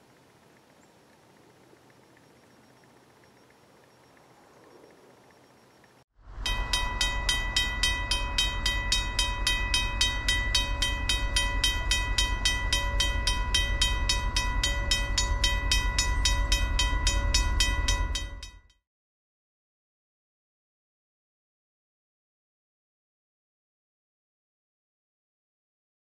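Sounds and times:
low rumble: 6.2s - 18.6s
railroad crossing bell ringing: 6.3s - 18.7s.

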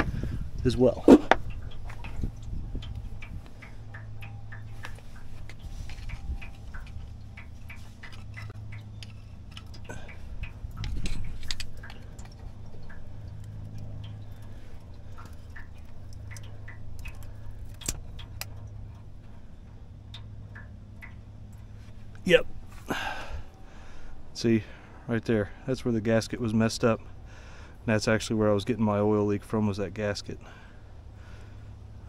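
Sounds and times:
gasket scraping ticks: 0.0s - 24.4s
steady low hum: 0.0s - 32.0s.

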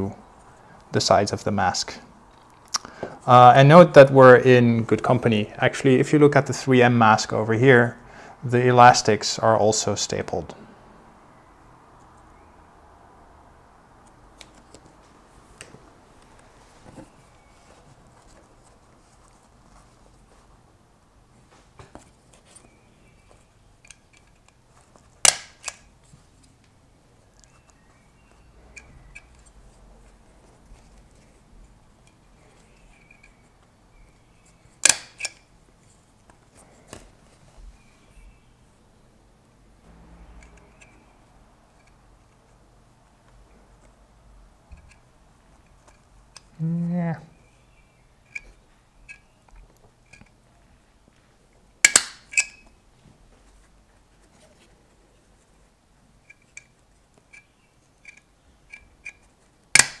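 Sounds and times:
stapler clacking: 25.2s - 25.8s, 34.8s - 35.4s, 59.8s - 60.0s.

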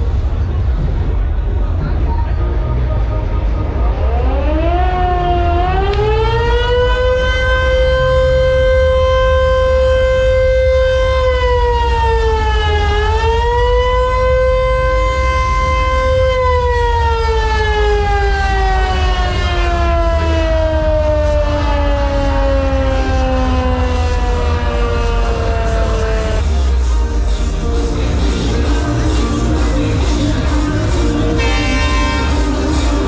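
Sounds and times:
steady low rumble: 0.0s - 33.0s
siren wailing: 3.4s - 27.2s, 31.2s - 33.0s.

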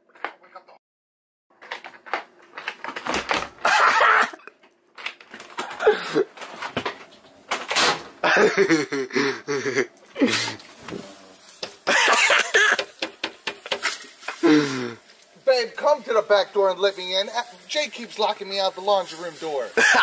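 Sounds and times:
person laughing: 3.6s - 4.5s, 5.8s - 6.4s, 8.2s - 10.6s, 11.8s - 12.9s, 19.8s - 20.0s
rustling: 13.4s - 20.0s.

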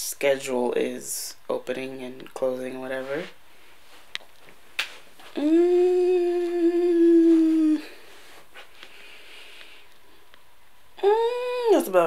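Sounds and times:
woman humming: 5.3s - 8.1s, 11.0s - 11.9s.

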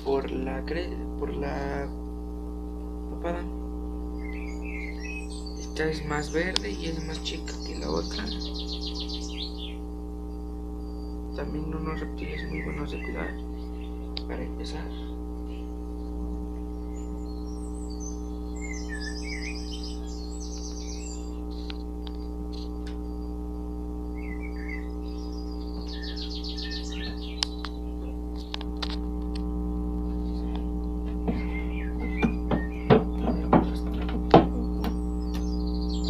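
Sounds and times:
electrical hum: 0.0s - 36.0s
high chirping calls: 4.1s - 23.4s, 24.1s - 28.6s, 30.2s - 36.0s
sharp clicks: 21.5s - 23.1s, 27.3s - 29.5s.

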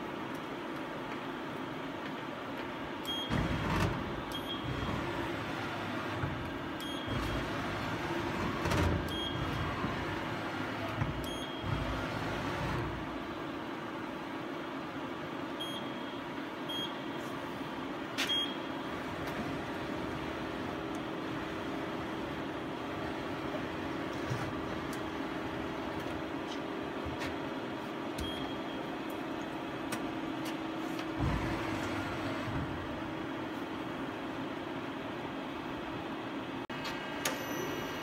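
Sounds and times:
machine hum: 0.0s - 15.1s, 17.4s - 36.5s
short high beeps: 37.3s - 38.0s.

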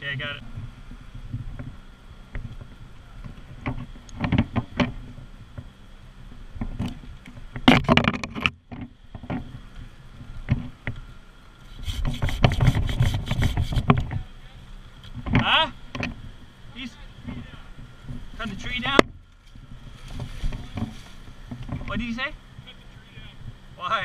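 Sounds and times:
knocks of climbing gear and wood: 1.5s - 5.7s, 6.6s - 9.5s, 18.8s - 22.0s
rapid strokes: 11.6s - 14.0s.

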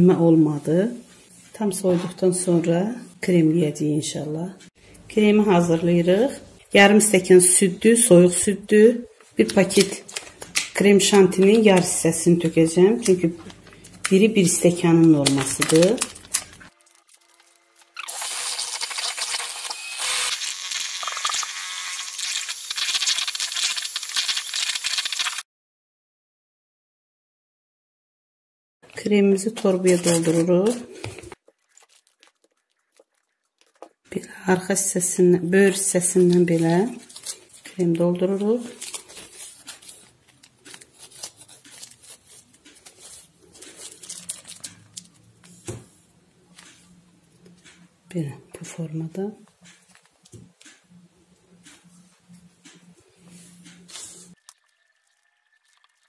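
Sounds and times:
plastic piping bag crinkling: 12.9s - 18.0s, 29.5s - 34.8s, 35.7s - 45.5s.

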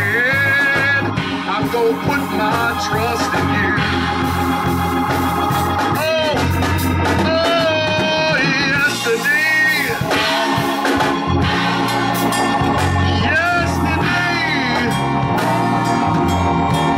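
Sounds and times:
man singing into a microphone: 0.0s - 4.0s, 7.2s - 10.3s, 13.1s - 15.1s
organ accompaniment: 0.0s - 16.9s.

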